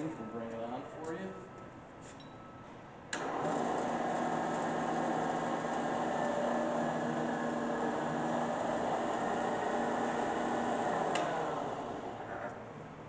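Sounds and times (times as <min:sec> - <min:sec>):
milling machine motor humming: 0:03.2 - 0:12.6.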